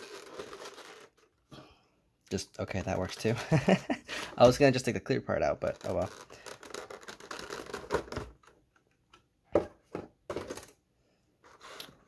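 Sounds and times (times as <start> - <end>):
plastic packaging crinkling: 0.0 - 1.4, 5.6 - 8.2.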